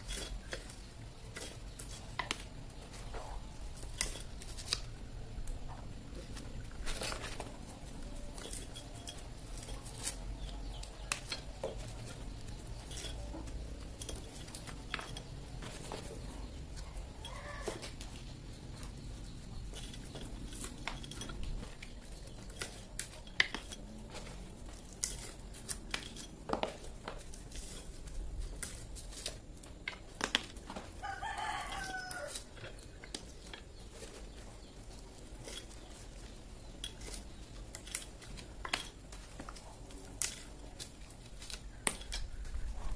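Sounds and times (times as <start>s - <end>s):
nut shells cracking and clattering: 0.0s - 5.6s, 6.2s - 42.7s
rooster crowing: 31.0s - 32.5s.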